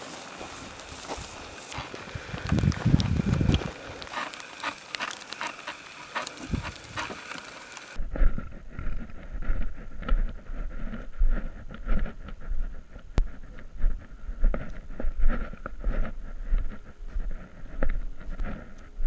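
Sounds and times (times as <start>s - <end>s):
steady hiss: 0.0s - 8.0s
footsteps on dirt road: 0.0s - 19.0s
wind rumble on microphone: 1.1s - 4.2s, 6.4s - 7.1s, 8.0s - 19.0s.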